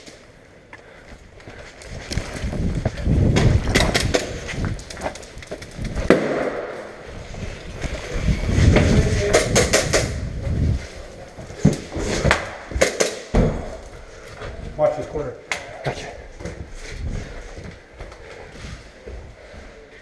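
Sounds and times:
hurried footsteps: 0:00.0 - 0:20.0
wind buffeting microphone: 0:01.9 - 0:06.1, 0:07.0 - 0:11.6.

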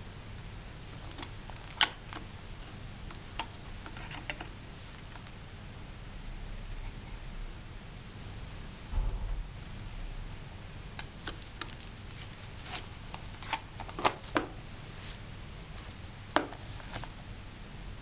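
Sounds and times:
plastic cd case clicks and snaps: 0:01.0 - 0:02.3, 0:12.7 - 0:14.6.

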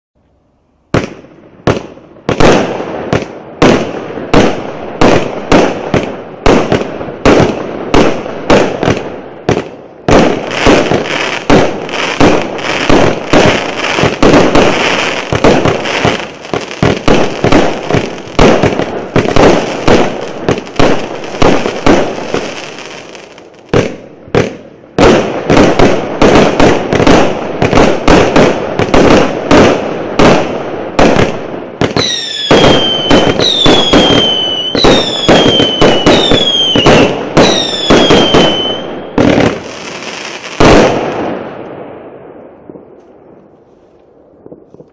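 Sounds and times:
firework launches and bursts: 0:00.9 - 0:41.4
firework crackling hiss: 0:10.2 - 0:23.8.

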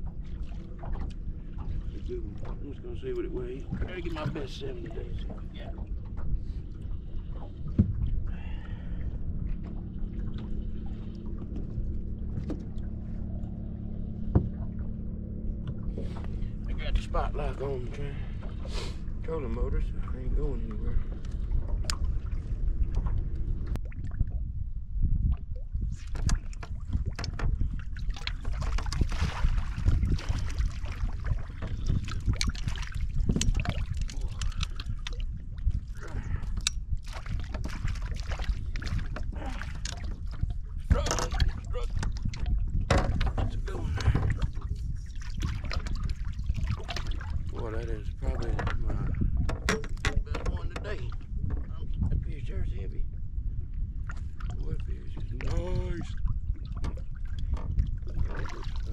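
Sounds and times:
choppy water washing: 0:00.0 - 0:58.9
wind buffeting microphone: 0:00.0 - 0:58.9
knocks on boat: 0:07.7 - 0:08.0, 0:14.3 - 0:14.6, 0:42.8 - 0:44.4
trolling motor humming: 0:08.6 - 0:23.6.

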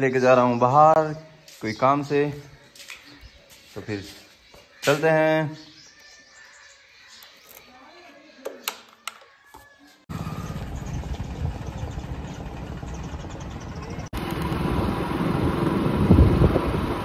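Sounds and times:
motorcycle engine running: 0:10.1 - 0:17.0
wind on microphone: 0:14.7 - 0:17.0.

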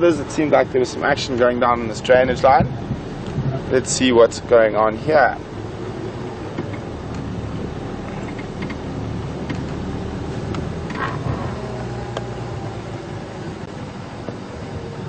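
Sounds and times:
vehicle engine running: 0:00.0 - 0:15.0
vehicle body rattling: 0:01.0 - 0:05.5, 0:06.4 - 0:11.4.

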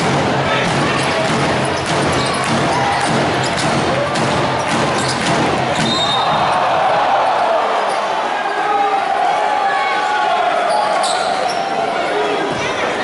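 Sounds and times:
many voices: 0:00.0 - 0:13.0.

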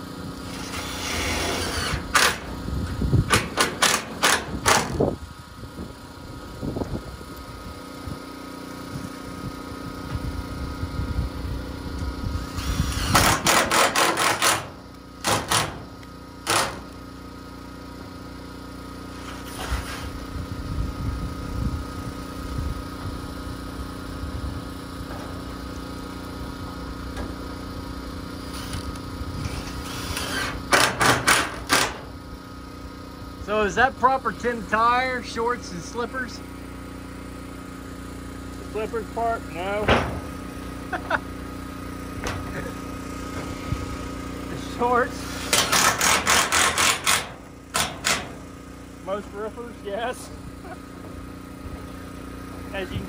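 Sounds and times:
steady mechanical hum: 0:00.0 - 0:53.0
impact driver driving screws into metal: 0:00.7 - 0:02.6, 0:03.3 - 0:05.0, 0:12.8 - 0:15.8, 0:16.4 - 0:16.9, 0:30.1 - 0:32.0, 0:45.5 - 0:48.4.

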